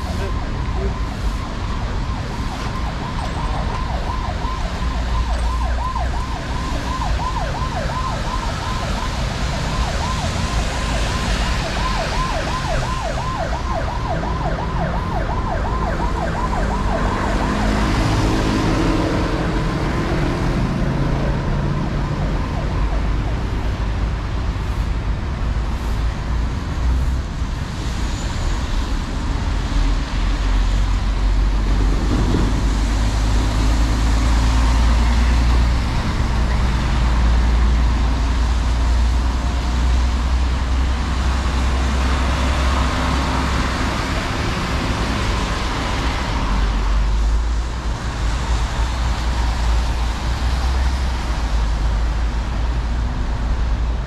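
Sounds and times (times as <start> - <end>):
siren yelping: 0.0 - 18.0
city road traffic: 0.0 - 54.0.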